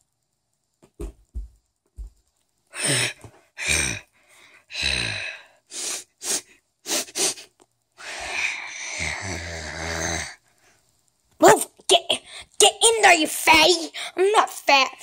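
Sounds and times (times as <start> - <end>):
soft low thumps: 0.8 - 2.3
person making breathy huffs: 2.7 - 10.3
rasping growl: 8.0 - 10.4.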